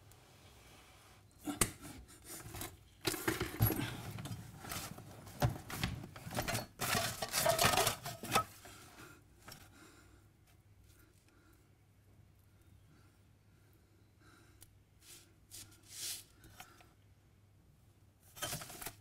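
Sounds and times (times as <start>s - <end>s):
hand scraping and rustling on floor: 15.0s - 16.8s.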